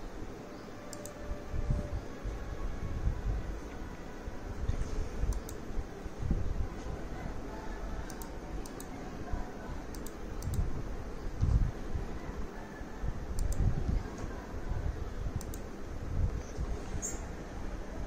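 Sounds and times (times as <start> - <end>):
computer mouse clicks: 0.9 - 1.2, 5.3 - 5.7, 8.1 - 9.0, 9.9 - 10.7, 13.3 - 13.7, 15.4 - 15.7.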